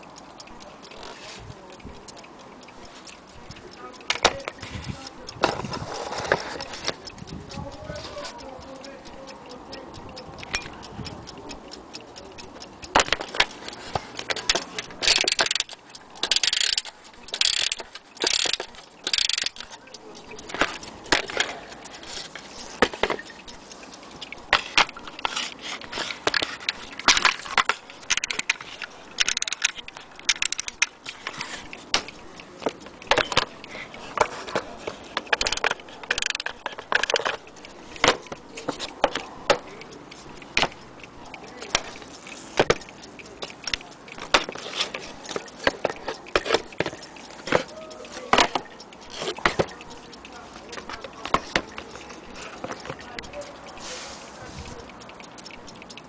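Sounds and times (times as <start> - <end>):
clock ticking and clicking: 0.0 - 56.0
clock handling clatter: 2.0 - 7.3, 11.9 - 54.0.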